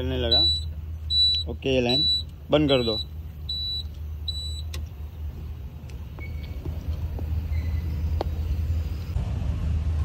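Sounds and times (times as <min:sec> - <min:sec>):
short high warning beeps: 0:00.2 - 0:04.7.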